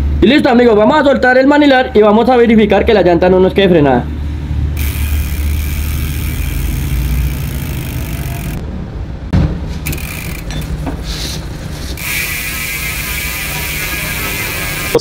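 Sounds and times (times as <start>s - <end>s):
steady low hum: 4.0s - 15.0s
bicycle wheel spinning: 4.8s - 8.6s, 9.8s - 15.0s.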